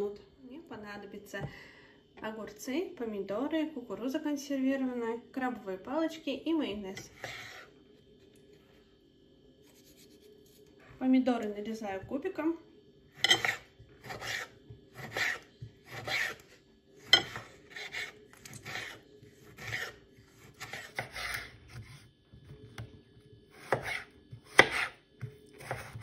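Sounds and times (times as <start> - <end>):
knife cutting on wooden board: 13.2 - 22.0, 23.6 - 26.0.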